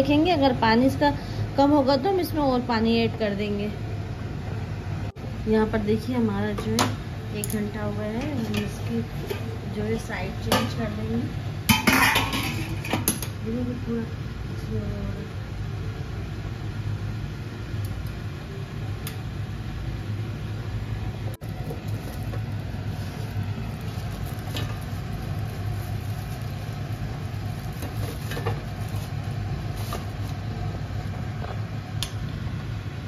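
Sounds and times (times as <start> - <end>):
gas burner rumbling: 0.0 - 33.0
water boiling: 20.4 - 33.0.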